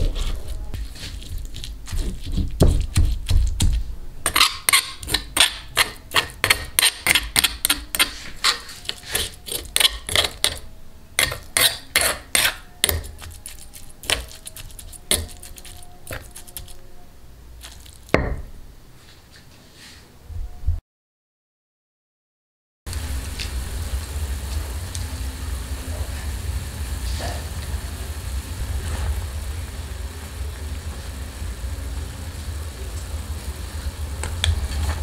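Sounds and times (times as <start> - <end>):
stone pestle grinding in mortar: 0.0 - 10.6, 11.2 - 16.8.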